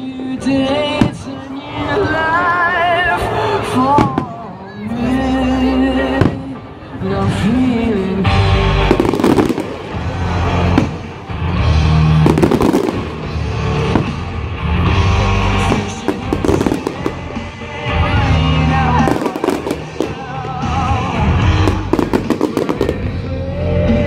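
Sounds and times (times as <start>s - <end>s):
fireworks bangs and crackles: 3.9s - 4.5s, 6.1s - 24.0s
loud music with bass line: 5.1s - 24.0s.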